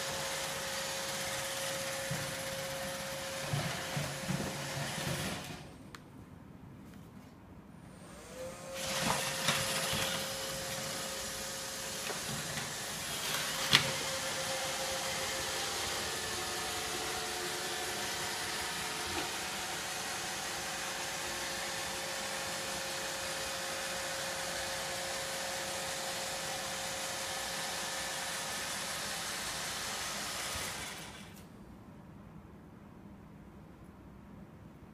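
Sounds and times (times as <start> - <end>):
robot vacuum whirring: 0.0 - 5.7, 8.0 - 24.7.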